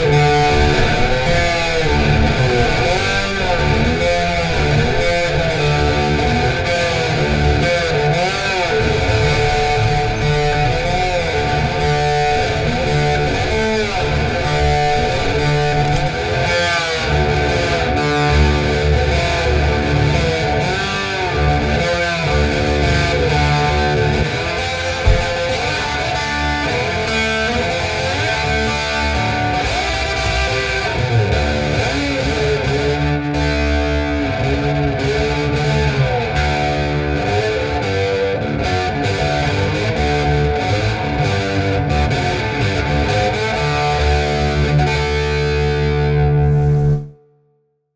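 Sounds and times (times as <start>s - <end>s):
electric guitar instrumental: 0.0s - 47.2s.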